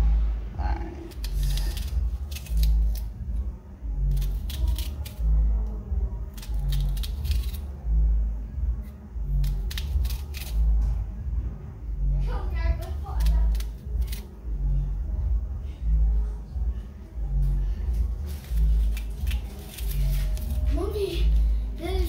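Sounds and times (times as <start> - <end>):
heavy bass beat: 0.0 - 22.0.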